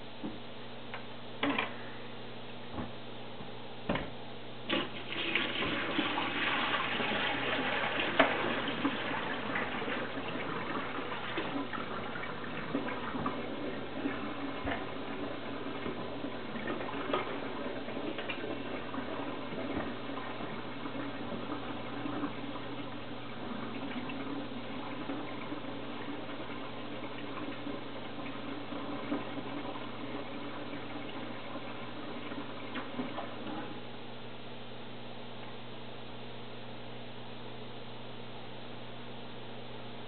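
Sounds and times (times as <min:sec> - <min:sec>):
water pouring into a sink: 0:04.7 - 0:33.7.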